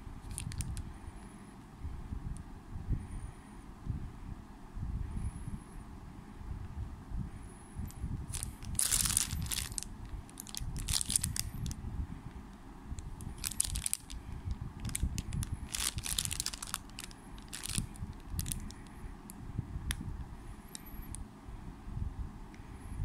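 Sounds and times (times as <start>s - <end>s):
steady low rumble: 0.0s - 23.0s
plastic bag crinkling: 0.3s - 0.8s, 8.3s - 11.8s, 13.2s - 18.8s.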